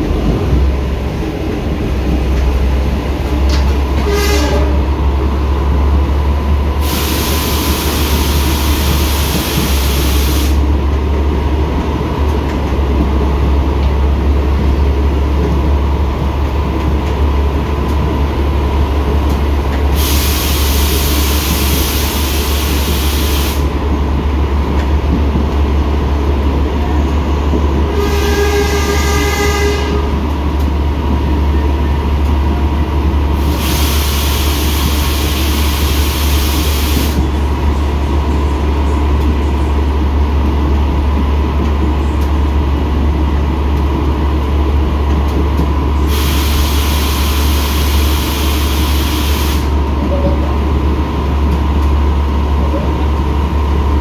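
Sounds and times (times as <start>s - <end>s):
train rumble inside coach: 0.0s - 54.0s
train horn: 3.9s - 5.0s, 27.8s - 30.3s.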